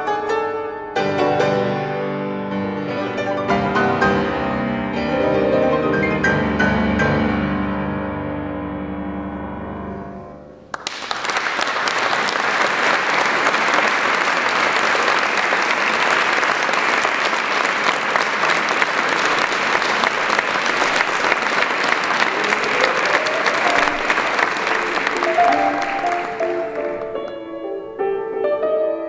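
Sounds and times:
audience applause: 0:10.7 - 0:27.5
piano chord: 0:22.3 - 0:29.0.

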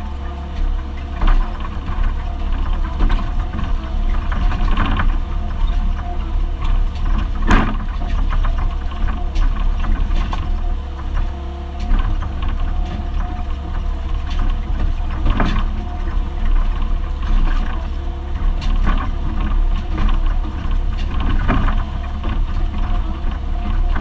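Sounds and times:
diesel engine droning: 0:00.0 - 0:24.0.

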